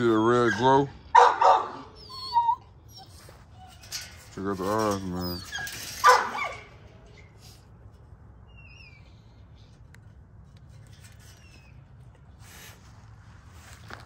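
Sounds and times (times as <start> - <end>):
short high squeaks: 2.0 - 9.7, 10.6 - 12.8
faint shuffling: 3.1 - 8.3, 9.7 - 14.0.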